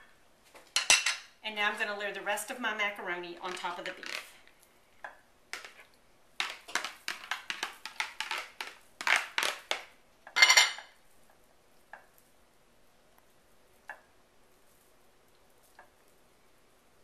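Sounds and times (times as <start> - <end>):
metal spoon clinking and scraping: 10.4 - 10.9.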